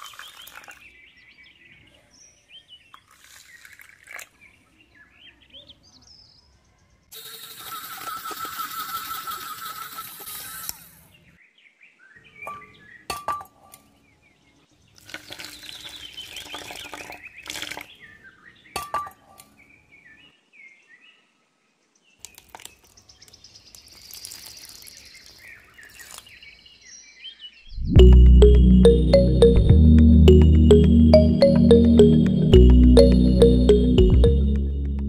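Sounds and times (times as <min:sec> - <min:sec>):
birds chirping faintly: 0:11.1 - 0:29.6.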